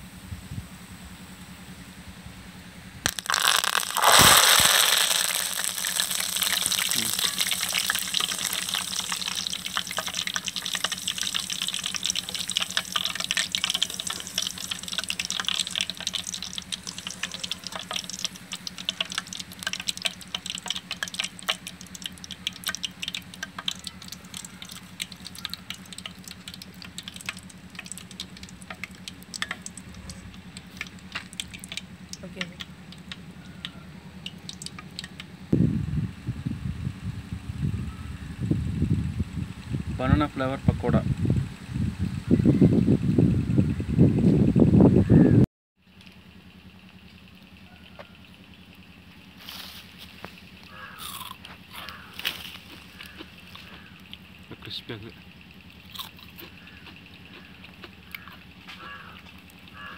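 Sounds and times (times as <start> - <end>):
leaves sizzling in hot oil: 3.0 - 33.3, 48.7 - 54.5.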